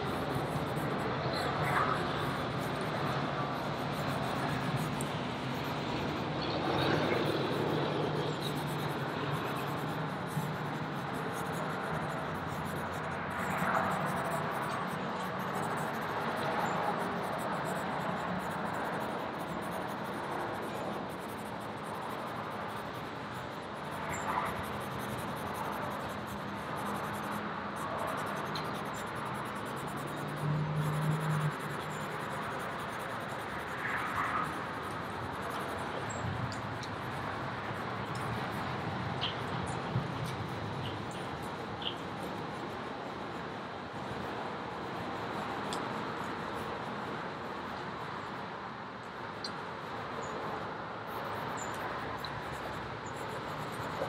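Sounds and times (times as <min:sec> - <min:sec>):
charcoal scratching on paper: 0:00.0 - 0:38.9, 0:51.1 - 0:54.0.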